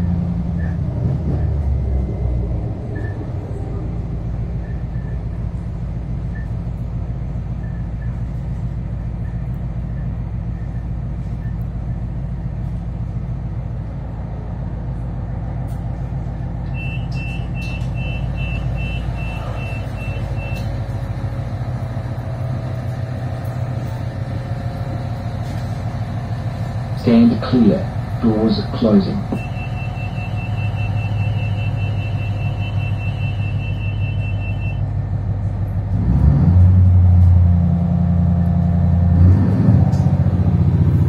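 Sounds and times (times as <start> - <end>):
diesel railcar running: 0.0 - 41.0
door warning beeps: 16.7 - 20.7, 29.0 - 34.8.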